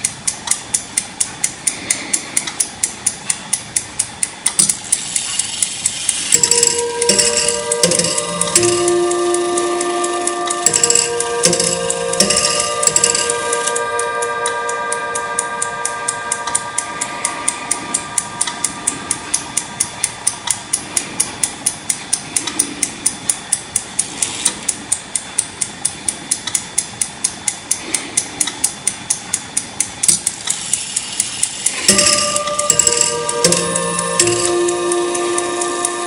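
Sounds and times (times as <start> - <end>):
clock ticking: 0.0 - 36.0
clock chime ringing: 6.4 - 20.3, 31.7 - 36.0.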